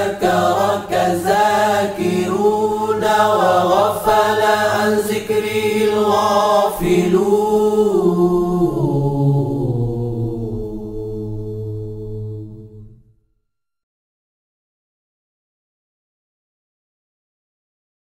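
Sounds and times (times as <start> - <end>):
person chanting unaccompanied: 0.0 - 12.7
steady low drone: 6.8 - 13.0.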